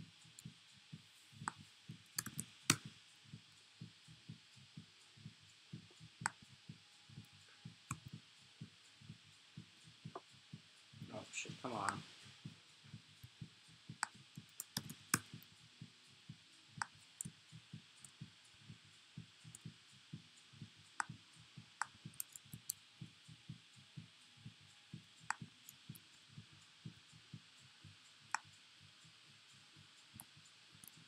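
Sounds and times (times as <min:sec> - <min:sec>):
sharp clicks: 0:02.2 - 0:02.8.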